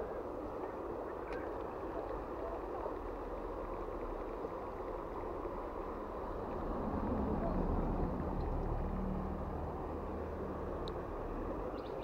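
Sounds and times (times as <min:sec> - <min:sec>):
shallow river flowing: 0:00.0 - 0:12.0
faint click: 0:01.2 - 0:02.2.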